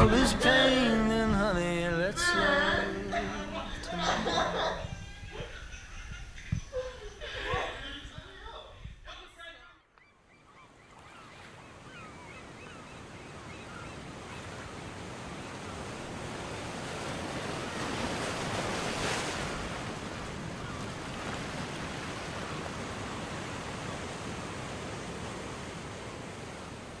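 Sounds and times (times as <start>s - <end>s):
ocean surf washing: 0.0s - 8.8s, 11.7s - 27.0s.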